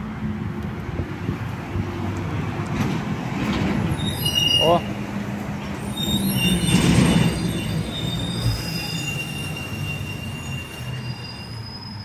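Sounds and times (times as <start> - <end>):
train rumbling past: 0.0 - 12.0
metallic wheel squeal: 3.9 - 5.0, 5.8 - 12.0.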